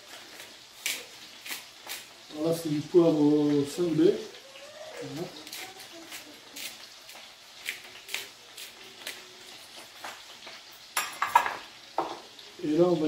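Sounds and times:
pepper grinder crunching: 0:05.3 - 0:09.9.

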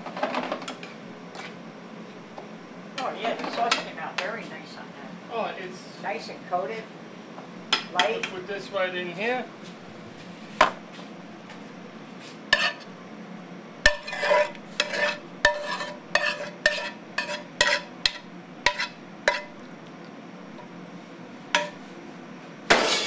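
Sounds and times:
spoon scraping: 0:12.6 - 0:12.9, 0:13.9 - 0:17.9, 0:18.7 - 0:19.5.

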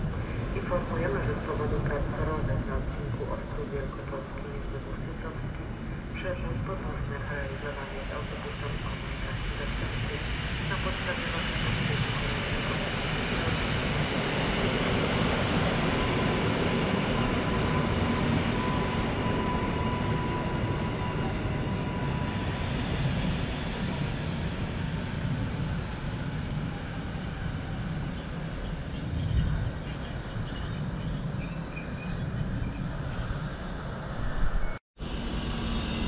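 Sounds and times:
high wheel squeal: 0:26.2 - 0:33.9.

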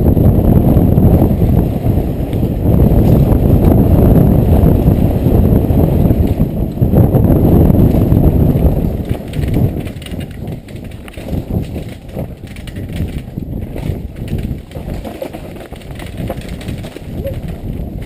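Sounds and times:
wind on microphone: 0:00.0 - 0:18.0
bike tyres and chain clattering: 0:00.1 - 0:18.0.

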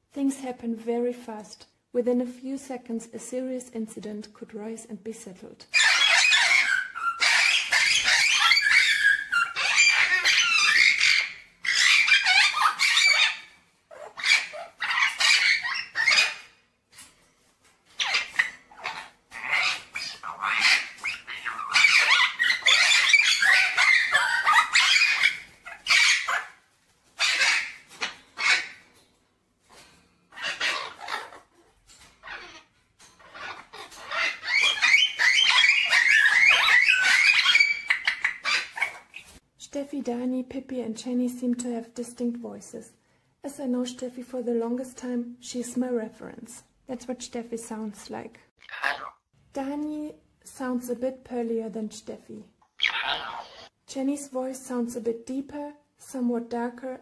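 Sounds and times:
parrots squawking: 0:05.7 - 0:16.6, 0:17.9 - 0:28.9, 0:30.2 - 0:39.4, 0:48.6 - 0:49.3, 0:52.8 - 0:53.8.

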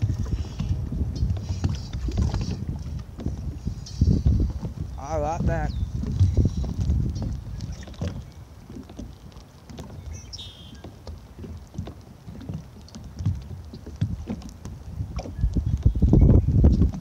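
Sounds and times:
soft knocks and bumps: 0:04.2 - 0:10.0.

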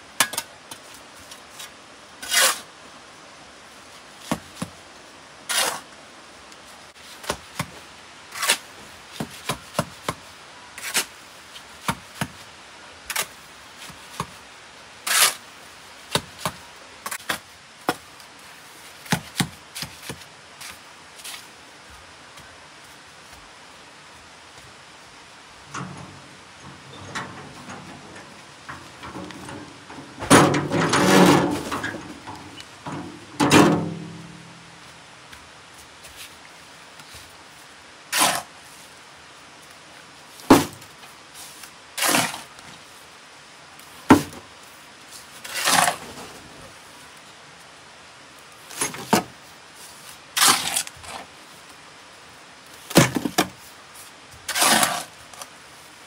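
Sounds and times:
bricks clattering: 0:25.7 - 0:34.2.

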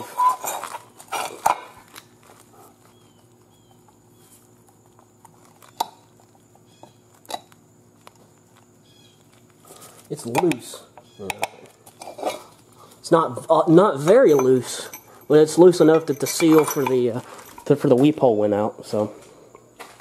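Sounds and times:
pump bearing rattling: 0:13.9 - 0:17.8.

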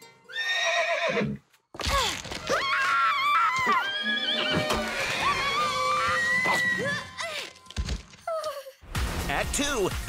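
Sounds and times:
cartoon horse whinnying: 0:00.3 - 0:01.4, 0:02.4 - 0:07.1
girl screaming: 0:01.9 - 0:07.4.

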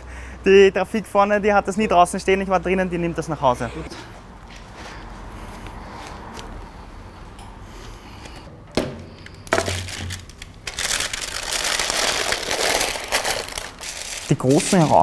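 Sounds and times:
baking paper crinkling: 0:09.2 - 0:15.0.

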